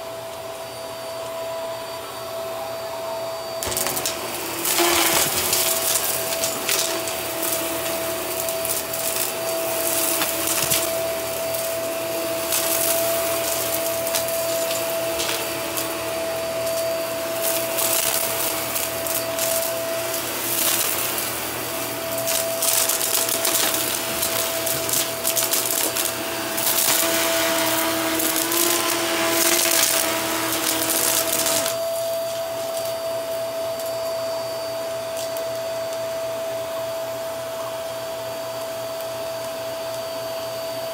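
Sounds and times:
vacuum cleaner motor whine: 0.0s - 40.9s
debris crackling through vacuum: 3.6s - 31.8s.

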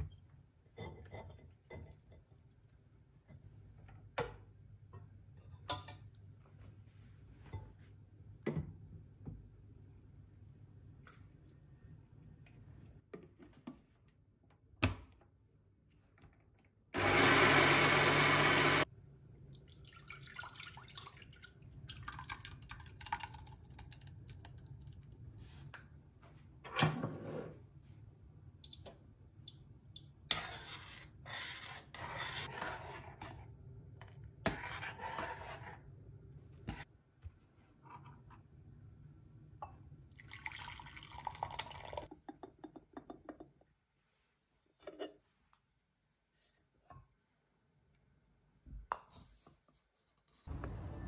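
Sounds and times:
blender running: 17.0s - 18.9s.

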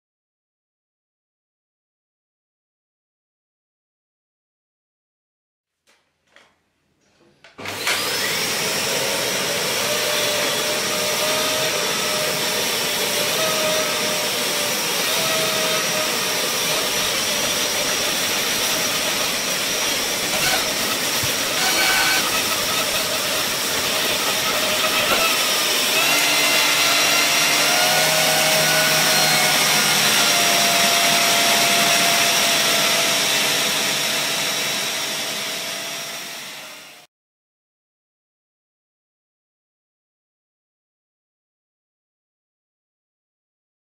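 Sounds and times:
vacuum cleaner motor whine: 7.6s - 37.1s.

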